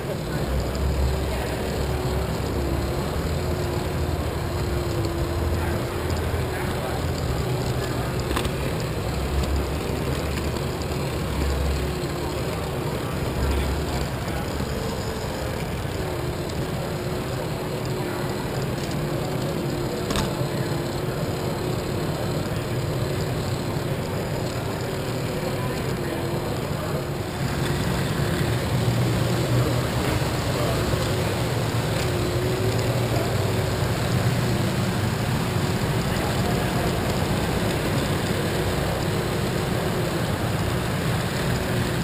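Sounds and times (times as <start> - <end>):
murmur of voices: 0.0 - 42.0
toy train electric motor whirring: 0.0 - 42.0.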